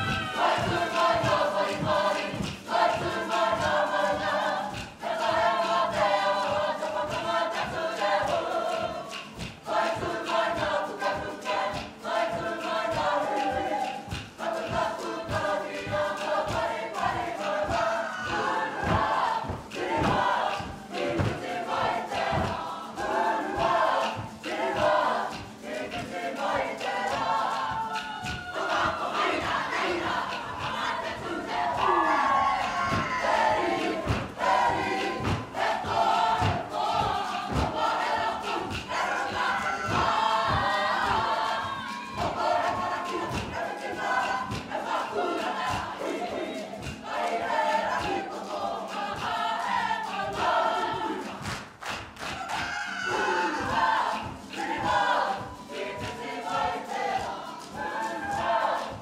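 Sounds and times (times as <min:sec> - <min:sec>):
group singing in unison: 0:00.0 - 0:59.0.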